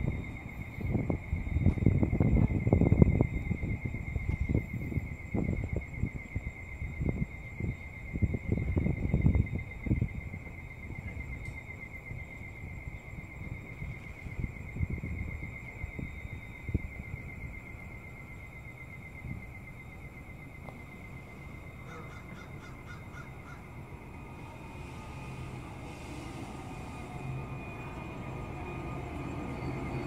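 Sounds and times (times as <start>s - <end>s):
crickets trilling: 0.0s - 30.0s
wind rumble on microphone: 0.0s - 30.0s
faint ticks: 11.4s - 11.6s.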